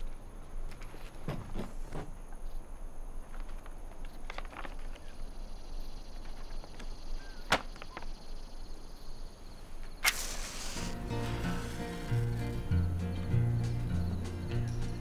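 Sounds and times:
low background hiss: 0.0 - 15.0
sharp cracks: 10.0 - 12.7
rustling: 10.0 - 13.9
music: 10.8 - 15.0.

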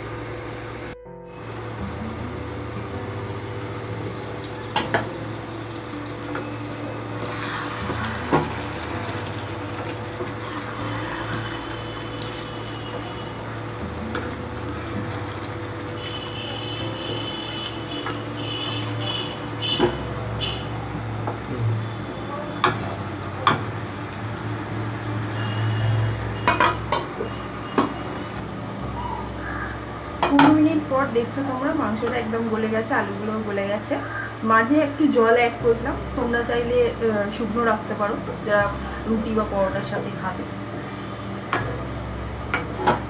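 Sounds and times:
curry simmering and bubbling: 3.6 - 21.9.

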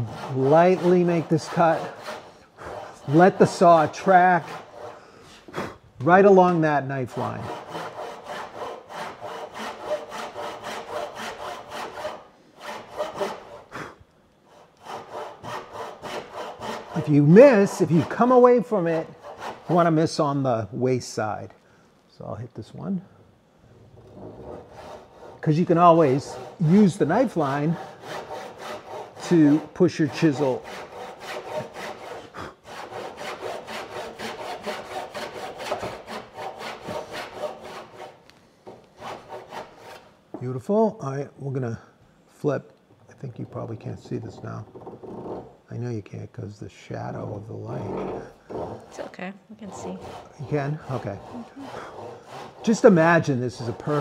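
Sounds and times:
hand saw strokes: 0.0 - 13.9, 14.5 - 20.3, 24.4 - 40.1, 47.1 - 54.0.

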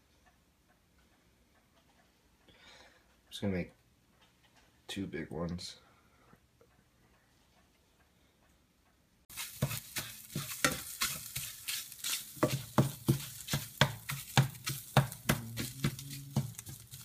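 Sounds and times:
eggs sizzling in a frying pan: 9.3 - 17.0
spatula scraping and tapping pan: 9.3 - 17.0.

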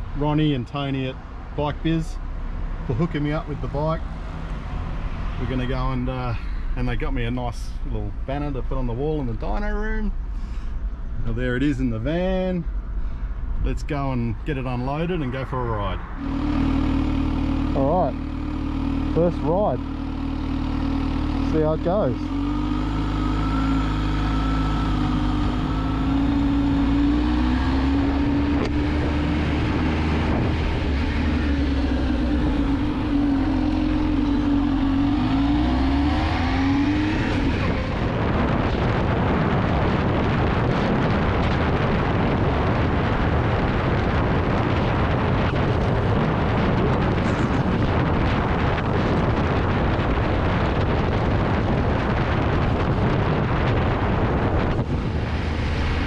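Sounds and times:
motorcycle engine running: 16.2 - 56.0
wind noise on microphone: 21.9 - 56.0.

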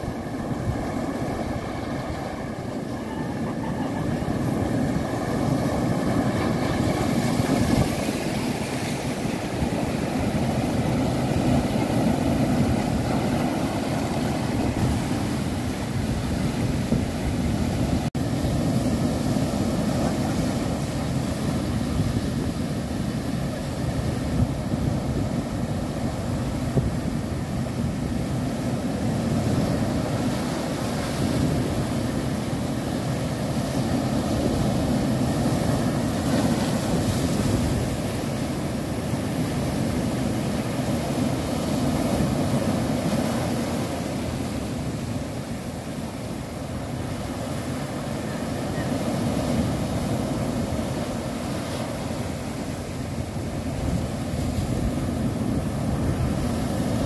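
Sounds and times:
wind buffeting microphone: 0.0 - 45.4
surf breaking on rocky shore: 0.0 - 57.0.

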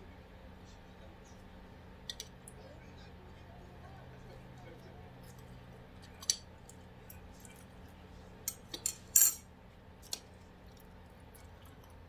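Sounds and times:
cutlery clinking against dishes: 8.5 - 9.5.

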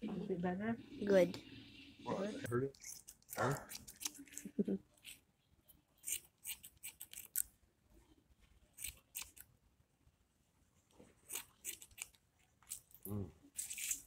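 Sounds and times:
scissors snipping hair: 6.0 - 7.5.

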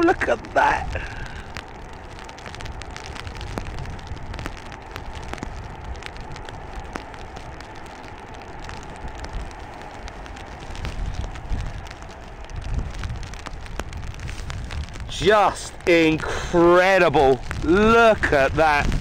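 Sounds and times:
distant jet noise: 0.0 - 19.0
low rumble of wind: 0.0 - 19.0
raindrops ticking on microphone: 0.0 - 19.0
steady rain: 0.0 - 19.0.

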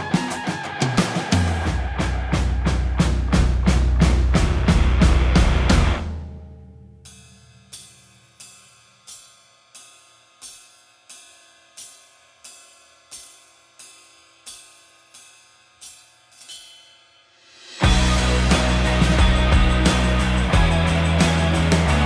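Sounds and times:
drum kit playing: 0.0 - 8.5, 17.4 - 22.0.

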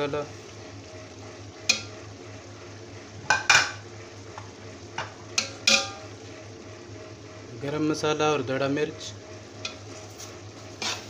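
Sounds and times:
masala sizzling: 0.0 - 11.0
spoon scraping steel pot: 10.8 - 11.0.

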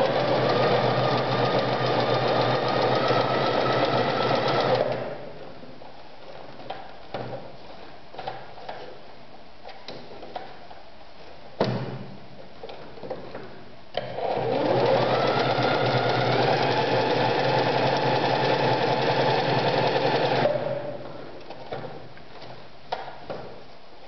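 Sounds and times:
sewing machine stitching: 0.0 - 5.2, 14.0 - 21.0.

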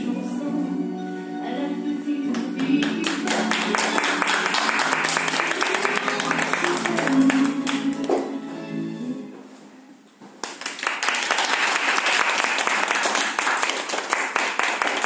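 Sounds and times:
recital music: 0.0 - 10.0
audience applauding: 2.6 - 8.3, 10.4 - 15.0.

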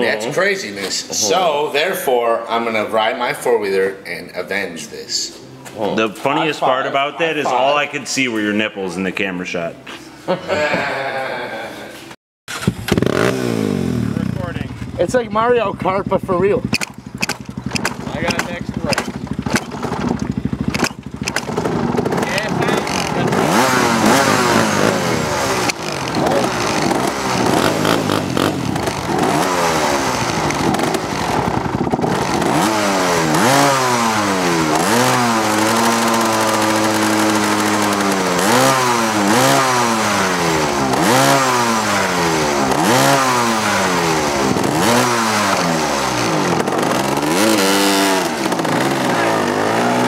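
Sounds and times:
atv engine revving: 12.5 - 50.0.

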